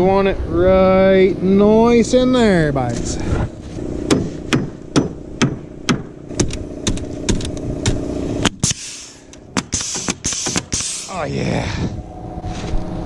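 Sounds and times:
steady engine hum: 0.0s - 13.0s
hammer knocking wooden truss: 4.1s - 8.0s, 9.6s - 10.9s
pneumatic nailer firing: 4.1s - 11.2s.

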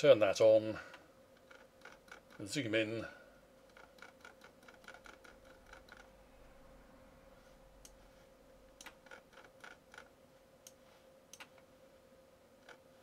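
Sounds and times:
faint steady hum: 0.0s - 13.0s
computer mouse clicks: 3.7s - 6.1s, 8.8s - 11.7s.

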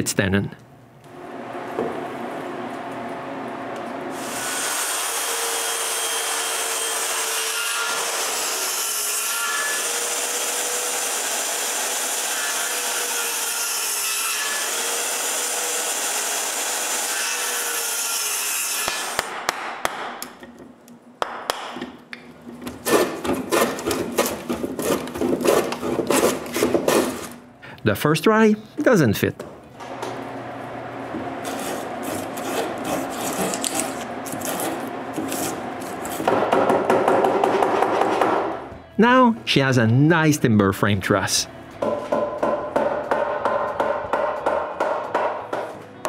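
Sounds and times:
circular saw cutting timber: 4.1s - 19.2s, 31.4s - 36.3s
hand plane rasping strokes: 31.4s - 36.3s.

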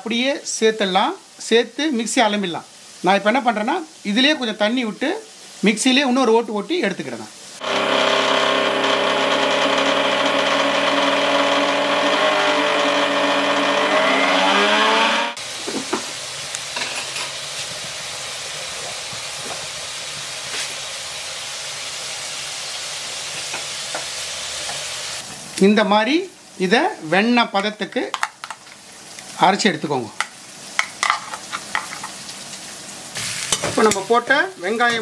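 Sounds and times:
food sizzling in a pan: 0.0s - 9.0s, 15.3s - 35.0s
mixer grinder motor whine: 7.6s - 15.4s.

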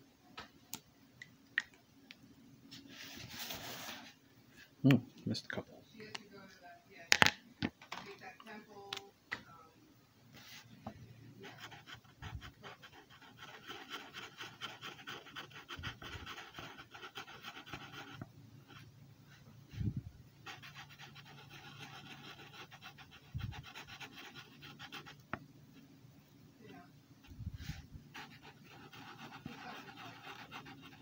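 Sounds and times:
marker scratching on paper: 11.4s - 18.9s, 20.4s - 25.3s, 27.7s - 31.0s.

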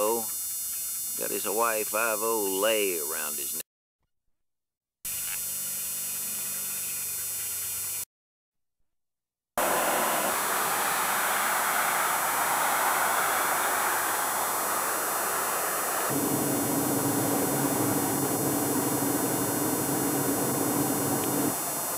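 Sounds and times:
highway traffic rushing: 9.6s - 21.9s
tape hiss: 9.6s - 21.9s
faint hum: 13.4s - 21.9s.

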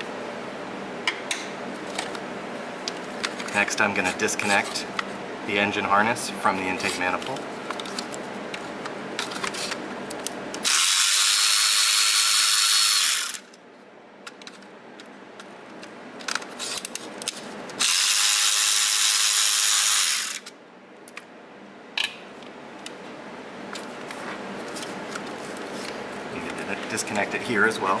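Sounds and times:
electric ratchet running: 10.6s - 13.6s, 17.8s - 20.5s.

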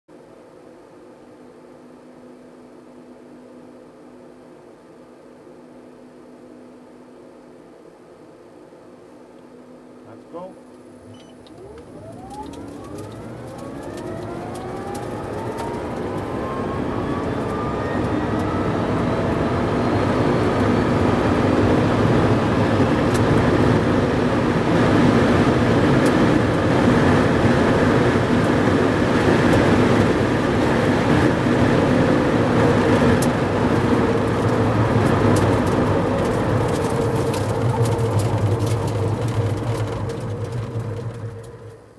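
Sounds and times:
electric motor whine: 10.8s - 41.9s
wind and tyre rush: 11.6s - 41.8s.

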